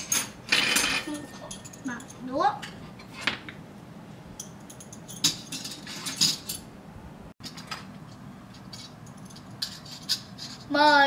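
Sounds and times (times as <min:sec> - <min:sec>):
metal cutlery clinking on dishes: 0:00.0 - 0:02.2, 0:04.4 - 0:06.7, 0:08.6 - 0:11.0.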